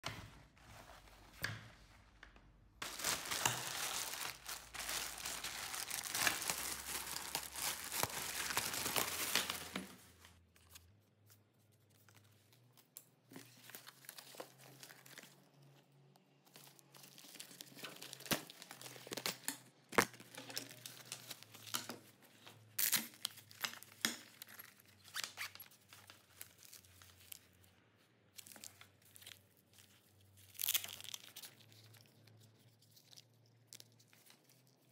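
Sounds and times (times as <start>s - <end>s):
fabric rustling: 0.2s - 2.2s, 2.8s - 10.4s.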